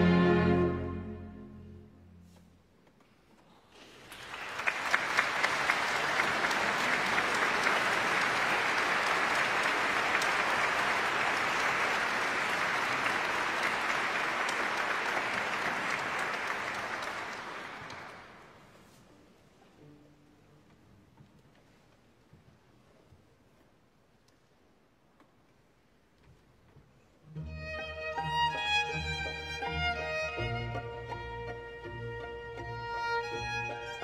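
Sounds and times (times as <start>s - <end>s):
audience applauding: 3.8s - 18.7s.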